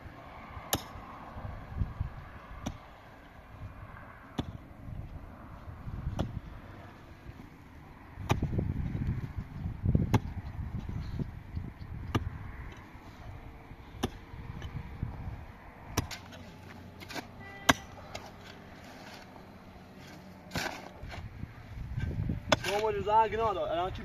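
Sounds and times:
pickaxes striking stony soil: 0.7 - 1.0, 2.6 - 2.9, 4.4 - 4.7, 6.0 - 6.5, 8.2 - 8.6, 9.9 - 10.9, 12.0 - 13.0, 13.9 - 14.8, 15.9 - 23.1
rattle of earth and stones: 1.8 - 24.0.

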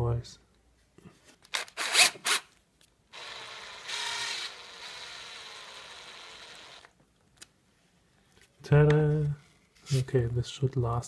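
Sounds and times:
cordless drill driving a screw: 1.5 - 2.4, 3.1 - 6.9.

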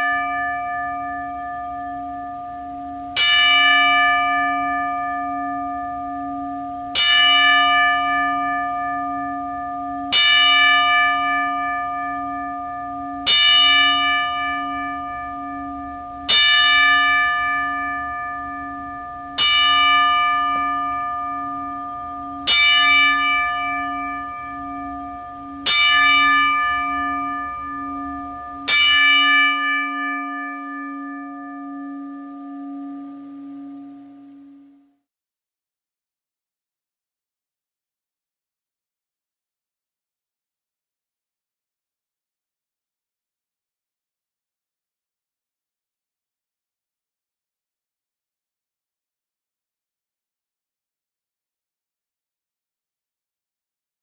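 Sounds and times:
bell tolling slowly: 0.0 - 35.0.

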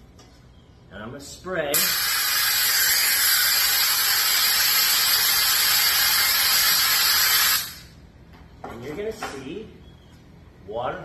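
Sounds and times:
compressed air hissing from hose: 1.8 - 8.0.

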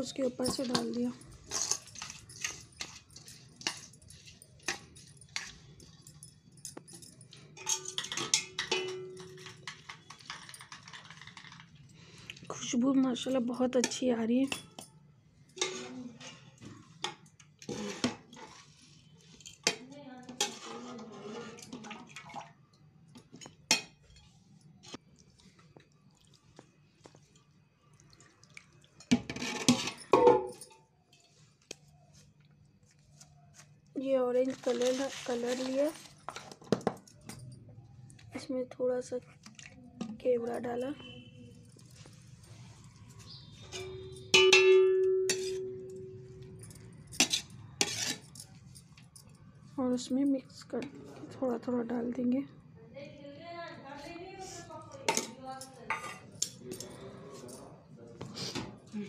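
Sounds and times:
spoon clinking on metal pot: 0.3 - 11.5, 43.2 - 48.5, 55.1 - 56.6.

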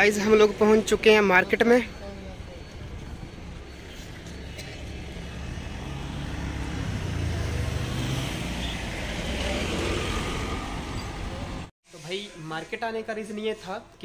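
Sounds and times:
street traffic noise: 0.0 - 11.7
vehicle driving past: 5.0 - 11.7.

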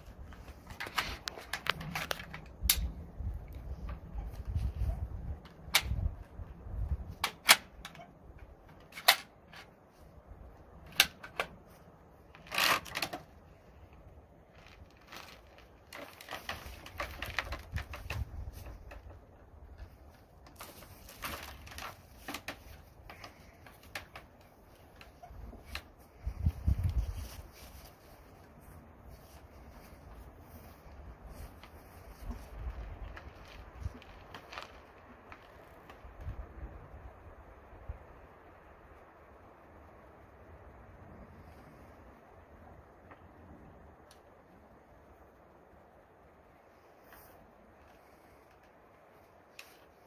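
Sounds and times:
rifle clicks and knocks: 0.3 - 3.0, 5.4 - 9.8, 10.8 - 11.7.

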